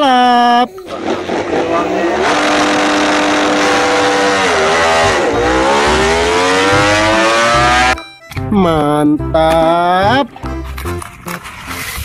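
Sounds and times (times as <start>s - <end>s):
motorcycle engine revving: 0.9s - 8.1s.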